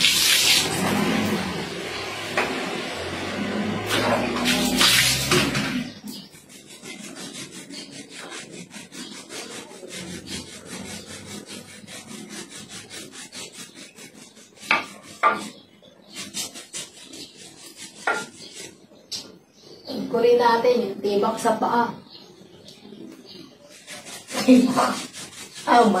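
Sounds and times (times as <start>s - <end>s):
scrubber rasping on skin: 6.3s - 18.8s, 23.7s - 26.0s.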